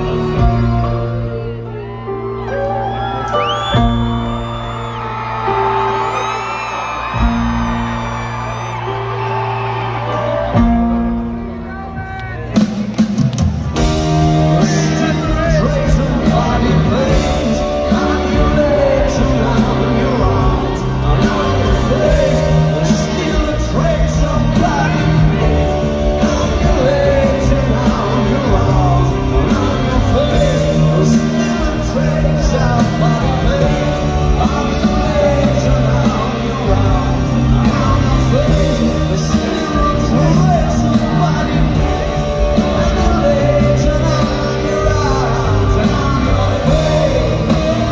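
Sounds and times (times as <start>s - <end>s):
live rock band: 0.0s - 47.9s
man singing: 14.0s - 47.9s.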